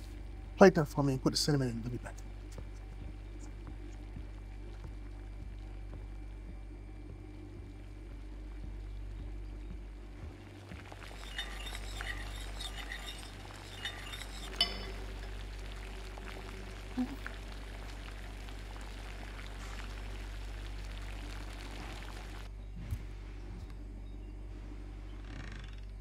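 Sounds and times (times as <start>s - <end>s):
steady low hum: 0.0s - 26.0s
dishes and utensils clinking: 11.0s - 15.2s.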